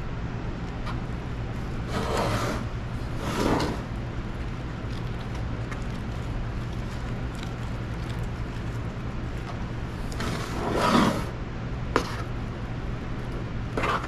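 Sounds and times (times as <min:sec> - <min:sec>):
steady low hum: 0:00.0 - 0:14.0
spatula spreading icing: 0:01.6 - 0:11.3, 0:13.7 - 0:14.0.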